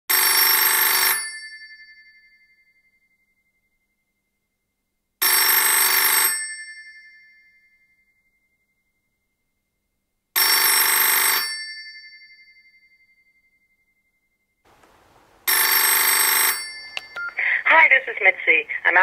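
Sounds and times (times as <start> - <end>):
telephone bell ringing: 0.1 - 3.2, 5.2 - 8.0, 10.4 - 13.5, 15.5 - 17.9.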